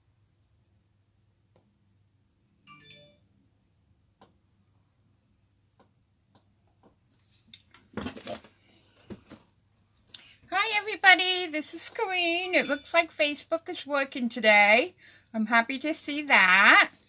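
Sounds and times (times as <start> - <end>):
faint taps and clicks: 5.7 - 7.9
brief chime: 12.6 - 13.0.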